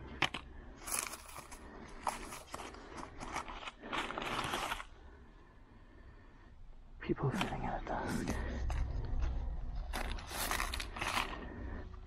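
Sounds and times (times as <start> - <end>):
papers rustling and scraping: 0.2 - 4.9, 7.4 - 11.8.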